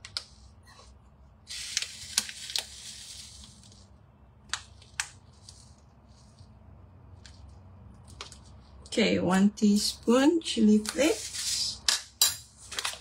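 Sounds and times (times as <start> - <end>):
plastic packet crinkling: 1.5 - 4.0.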